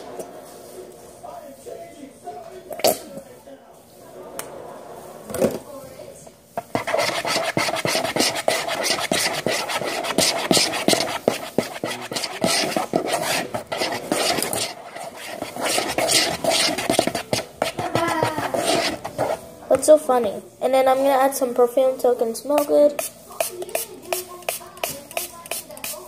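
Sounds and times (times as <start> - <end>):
utensil scraping a bowl: 6.6 - 19.5, 22.6 - 26.0.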